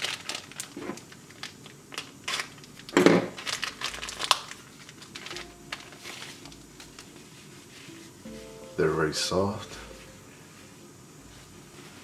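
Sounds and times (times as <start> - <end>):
plastic wrapper crinkling and tearing: 0.0 - 7.2.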